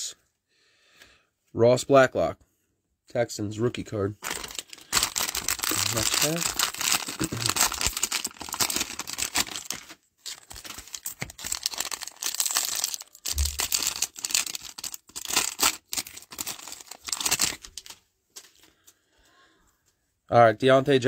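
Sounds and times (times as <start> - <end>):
cellophane wrapper crinkling and tearing: 4.2 - 18.7.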